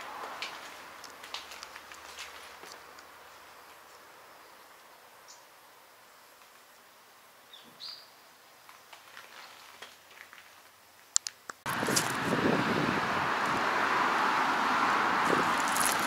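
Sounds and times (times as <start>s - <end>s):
faint steady hiss: 0.0s - 12.2s.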